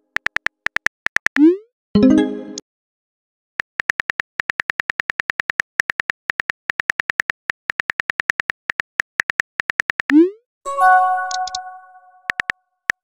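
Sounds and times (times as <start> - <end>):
smartphone keyboard clicks: 0.2 - 1.4, 12.3 - 13.0.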